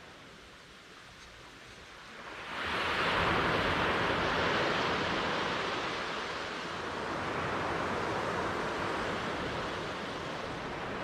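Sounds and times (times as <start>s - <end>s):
surf wash: 2.2s - 11.0s.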